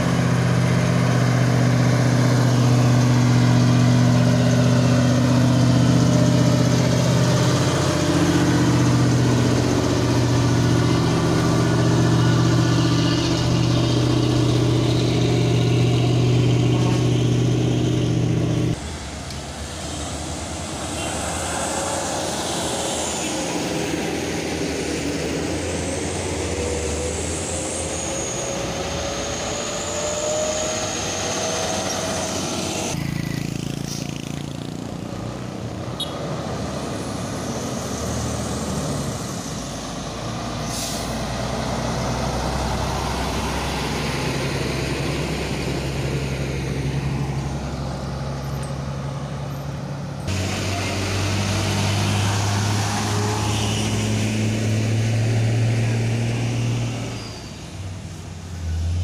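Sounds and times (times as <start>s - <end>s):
diesel truck engines under load: 0.0s - 59.0s.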